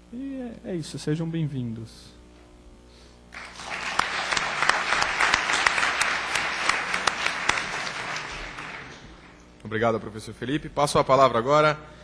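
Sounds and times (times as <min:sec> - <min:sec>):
audience applauding: 0:03.3 - 0:09.4.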